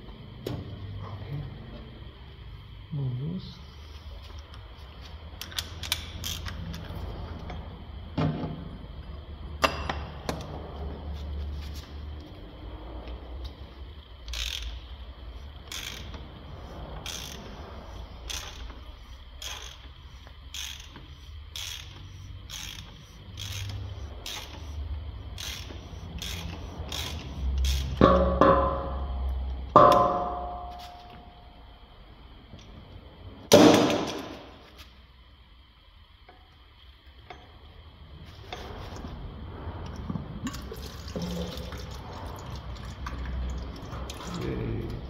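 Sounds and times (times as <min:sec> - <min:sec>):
ratchet wrench clicking: 0:05.3 - 0:07.6, 0:14.2 - 0:28.1.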